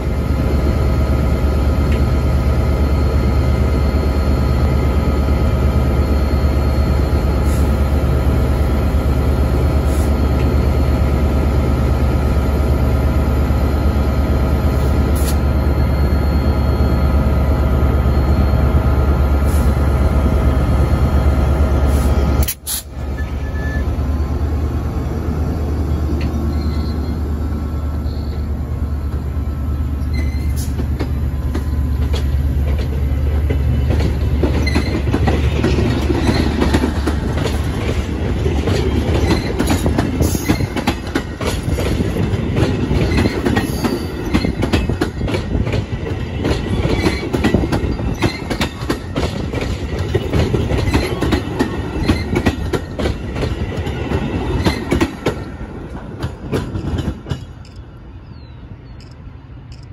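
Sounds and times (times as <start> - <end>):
diesel locomotive engine drone: 0.0 - 59.9
train wheels clicking over rail joints: 21.9 - 23.0, 30.0 - 58.0
wheel squeals: 23.1 - 24.0, 26.2 - 27.3, 30.0 - 30.8, 34.4 - 36.8.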